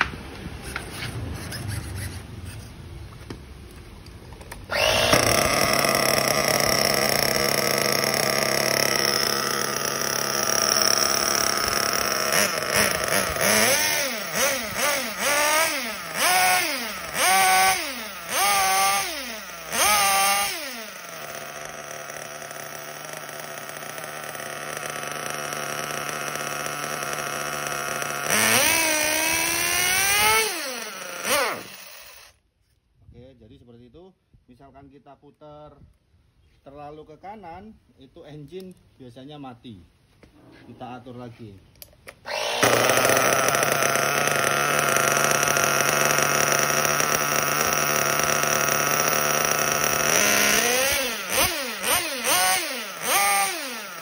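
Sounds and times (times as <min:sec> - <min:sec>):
nitro engine revving and idling: 0:04.6 - 0:32.3, 0:42.3 - 0:54.0.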